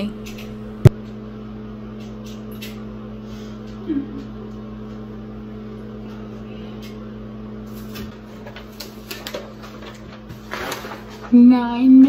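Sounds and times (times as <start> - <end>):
low hum: 0.0 - 7.9
paper liner crinkling: 7.8 - 12.0.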